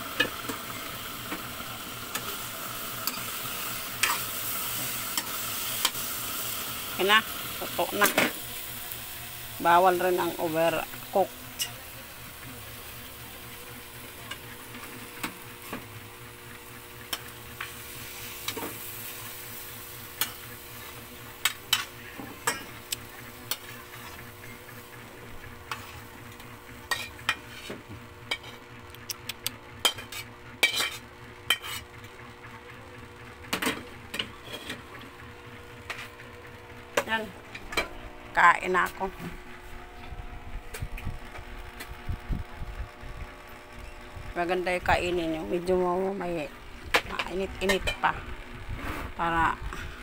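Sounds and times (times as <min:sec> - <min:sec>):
vegetables sizzling in pan: 0:00.0 - 0:28.6.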